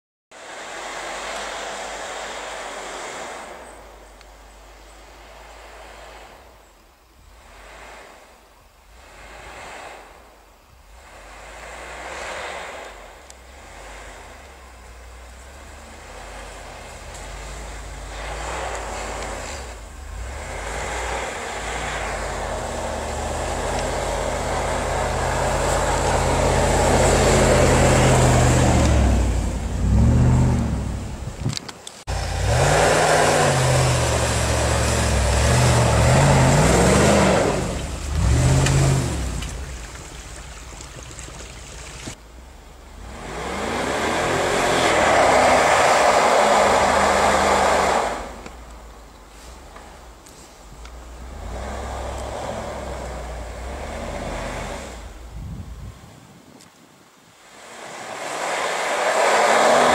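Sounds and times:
wheels churning through snow: 0.4 - 56.6, 57.3 - 59.9
car engine revving hard: 10.9 - 31.4, 32.1 - 39.8, 42.9 - 48.6, 51.0 - 55.3, 57.5 - 59.9.

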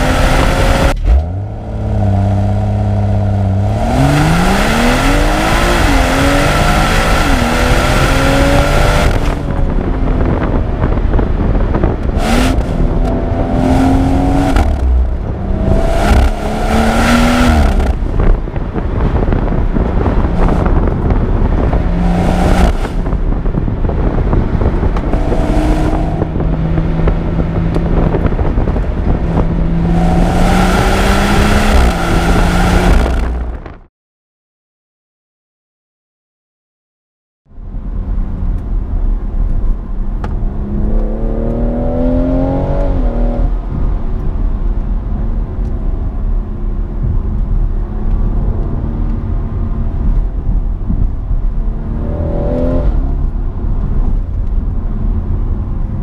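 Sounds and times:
car engine accelerating hard: 0.0 - 33.7, 38.0 - 56.0
road and wind noise: 0.0 - 33.9, 37.4 - 56.0.

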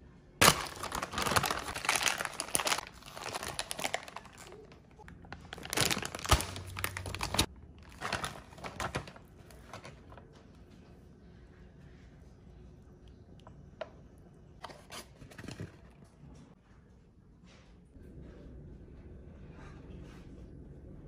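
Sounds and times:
plastic bag crinkling: 0.4 - 10.2.

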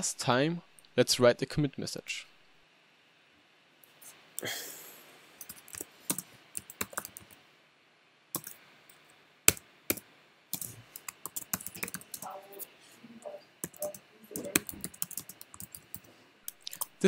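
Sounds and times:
computer keyboard typing: 5.4 - 7.4, 8.4 - 8.6, 9.5 - 12.7, 13.6 - 17.0.

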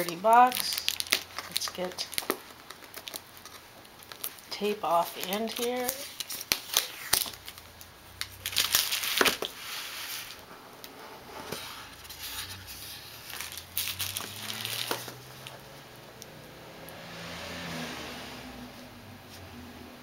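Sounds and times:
crinkling: 0.0 - 16.3
tape peeling off cardboard: 5.2 - 7.6.

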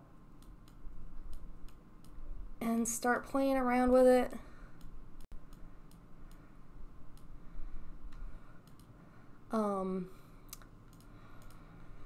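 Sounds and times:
computer mouse clicks: 0.4 - 2.2, 8.1 - 9.0, 10.5 - 11.7.

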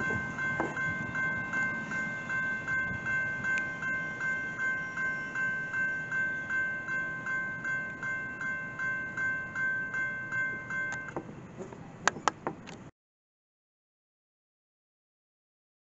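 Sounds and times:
railroad crossing bell ringing: 0.0 - 11.6.

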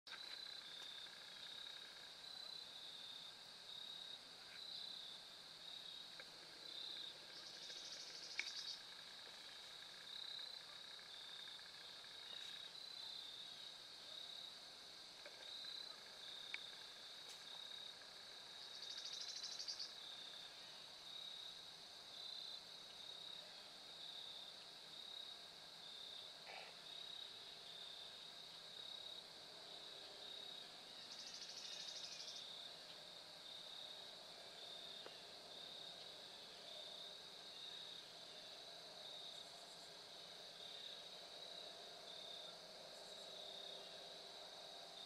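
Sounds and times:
insects trilling: 0.1 - 45.0
short rapid insect trills: 0.1 - 45.0
faint ticks: 7.3 - 9.4, 15.2 - 18.0.

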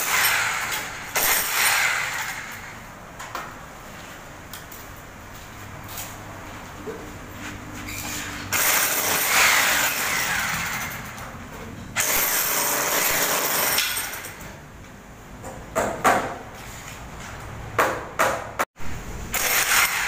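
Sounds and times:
harsh tool scraping overhead: 7.4 - 8.6.

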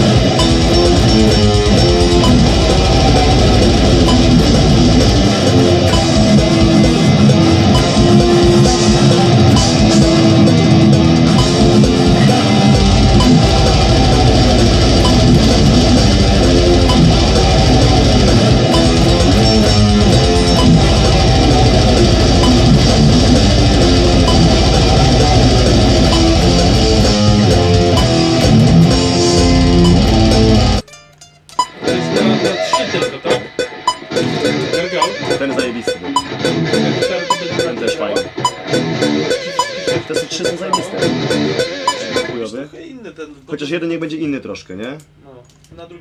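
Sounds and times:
fast low pulse: 0.0 - 30.8
distorted electric guitar riffing: 0.0 - 42.5.

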